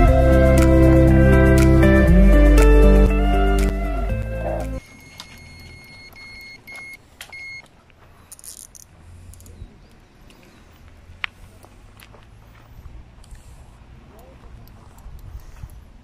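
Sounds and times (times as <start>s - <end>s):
bite alarm beeping: 4.3s - 7.7s.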